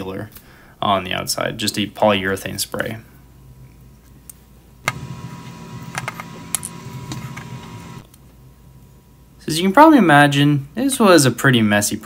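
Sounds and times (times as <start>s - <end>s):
steady low hum: 4.8s - 8.1s.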